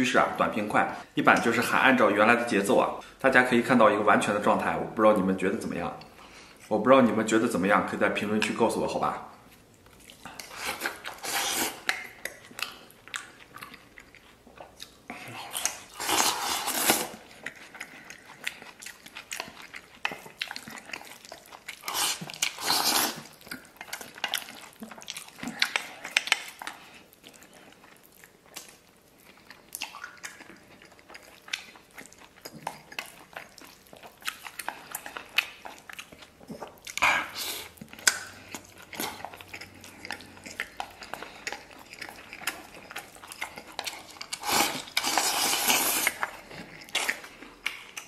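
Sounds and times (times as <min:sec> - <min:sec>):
chewing: 0:09.4 - 0:48.0
food slurped into mouth: 0:21.8 - 0:23.3, 0:44.4 - 0:46.4.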